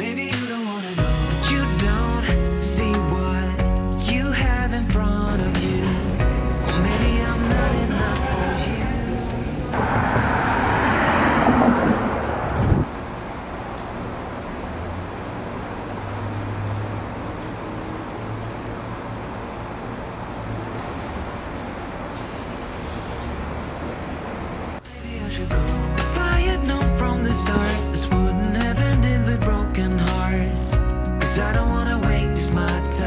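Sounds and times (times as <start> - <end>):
road traffic noise: 5.1 - 29.2
rough noise: 5.2 - 29.4.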